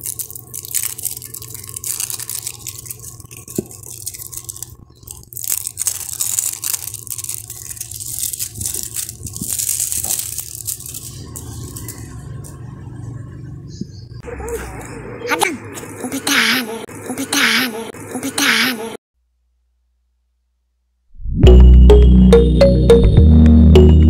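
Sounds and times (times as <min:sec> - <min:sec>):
plastic wrappers crinkling: 0:00.0 - 0:12.7.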